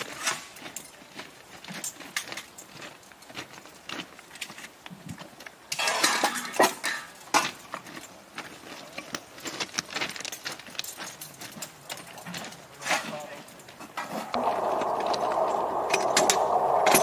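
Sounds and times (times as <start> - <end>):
footsteps crunching on gravel: 0.1 - 5.4, 7.4 - 14.0.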